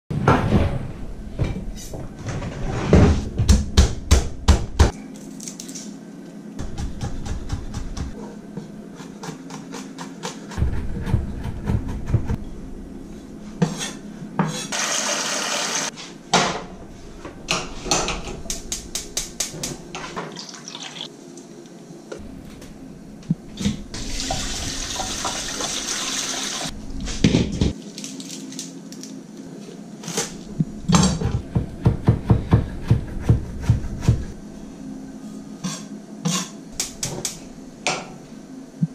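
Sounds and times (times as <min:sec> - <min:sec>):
kitchen tap running: 0:14.8 - 0:15.9, 0:20.3 - 0:21.1, 0:24.0 - 0:26.7.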